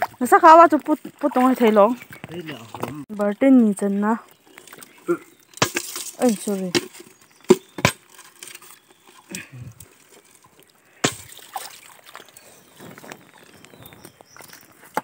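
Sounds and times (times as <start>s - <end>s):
muddy water sloshing and splashing: 0.0s - 15.0s
stones knocking: 5.6s - 9.4s, 11.0s - 11.7s.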